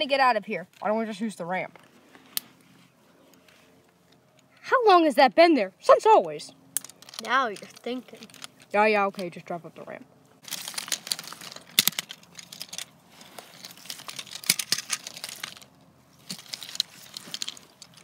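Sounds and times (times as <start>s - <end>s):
dry needles and twigs crackling: 5.8s - 18.0s
twigs snapping: 10.4s - 18.0s.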